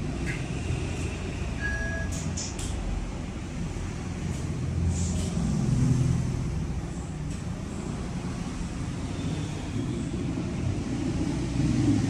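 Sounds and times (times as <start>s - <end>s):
road traffic rumble: 0.0s - 12.0s
short faint beep: 1.6s - 2.2s.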